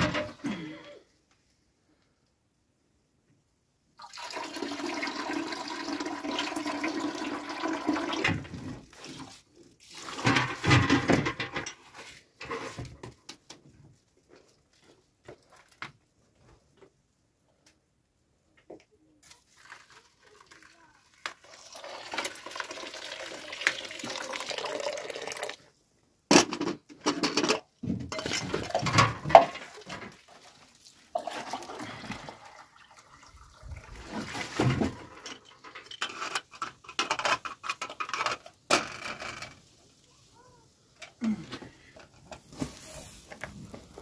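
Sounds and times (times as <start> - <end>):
water pouring into plastic basin: 4.0 - 11.0, 19.2 - 25.6, 28.2 - 35.2.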